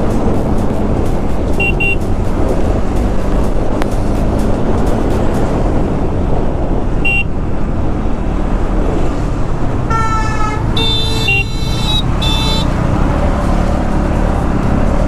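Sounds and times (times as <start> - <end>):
motorcycle engine: 0.0 - 15.0
wind rumble: 0.0 - 15.0
vehicle horns honking: 1.6 - 2.1, 7.0 - 7.3, 9.9 - 12.8.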